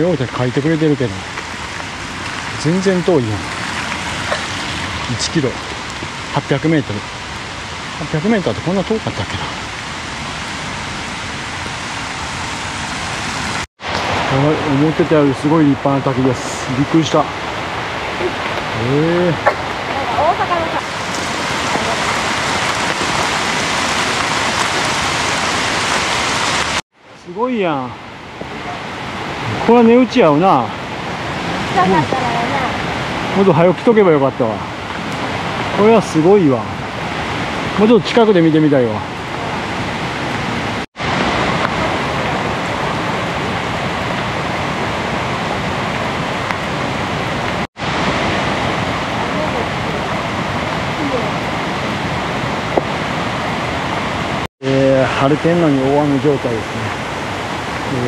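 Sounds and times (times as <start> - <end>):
waterfall rushing onto rocks: 0.0 - 58.0
rain pattering on an umbrella: 19.8 - 26.8.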